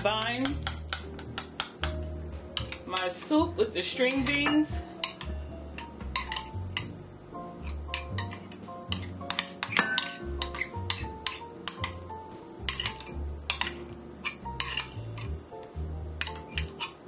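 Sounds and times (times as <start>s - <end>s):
background music with bass: 0.0s - 2.8s, 3.4s - 16.8s
glass and utensils clinking: 4.0s - 6.9s, 7.6s - 12.0s, 12.7s - 15.4s, 16.2s - 17.0s.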